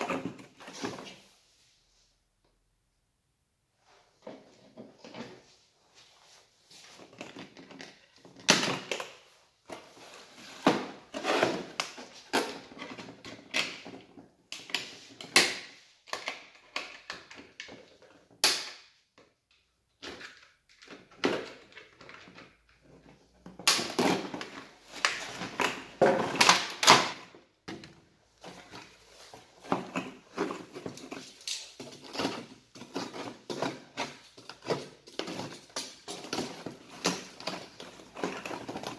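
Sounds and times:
packaging rustling and scraping: 9.6s - 15.3s, 21.0s - 27.3s, 28.3s - 38.9s.

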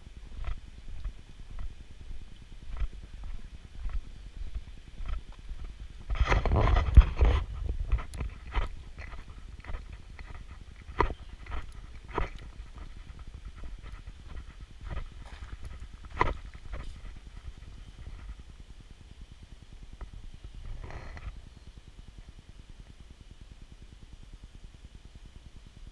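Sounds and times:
footsteps scuffing: 2.7s - 17.2s.

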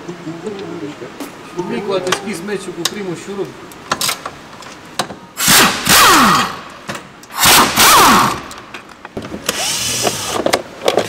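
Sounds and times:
power tool spinning socket: 9.4s - 10.5s.

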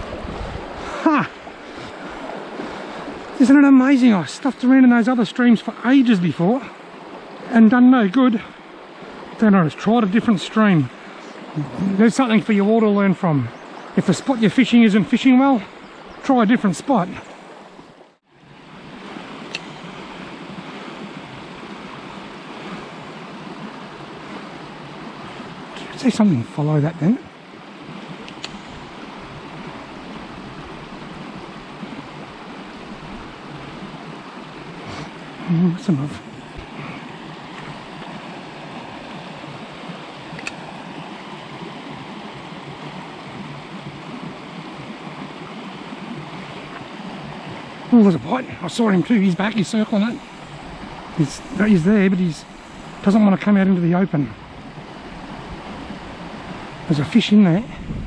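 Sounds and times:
creek water running: 0.0s - 58.0s
faint click: 19.5s - 19.7s, 28.3s - 28.6s, 40.4s - 40.6s.

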